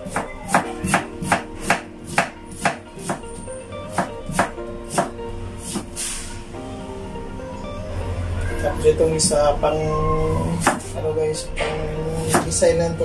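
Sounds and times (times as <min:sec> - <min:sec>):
knife chopping on wooden board: 0:00.0 - 0:03.3, 0:03.9 - 0:05.1, 0:10.6 - 0:10.9.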